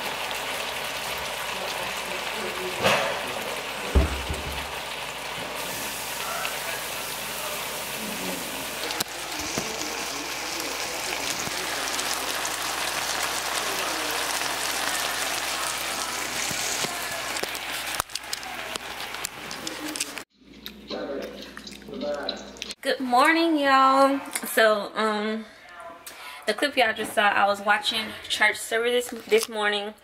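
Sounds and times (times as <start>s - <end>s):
steak sizzling in a skillet: 0.0s - 20.2s.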